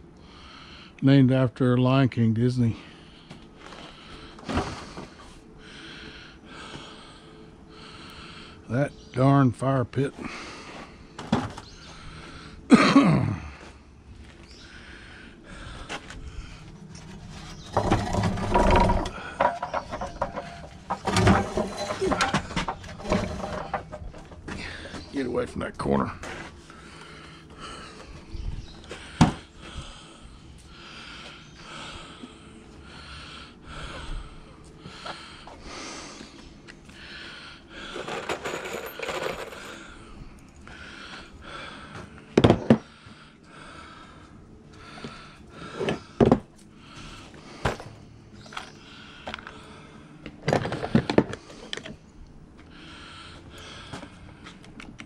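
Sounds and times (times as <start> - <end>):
metal tools clinking in toolbox: 17.7 - 24.2, 37.9 - 39.8.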